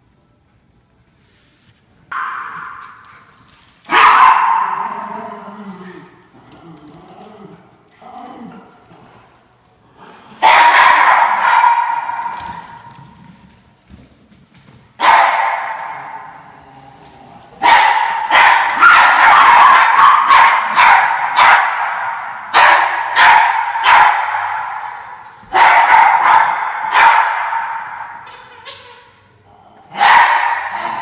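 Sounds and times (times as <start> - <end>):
dogs barking excitedly: 3.9 - 5.1, 10.3 - 13.0, 15.0 - 16.4, 17.6 - 28.2, 29.9 - 31.0.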